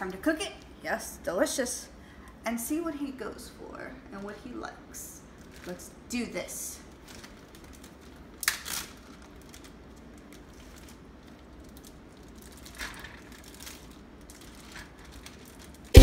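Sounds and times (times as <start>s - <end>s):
plastic bag crinkling: 5.3s - 16.0s.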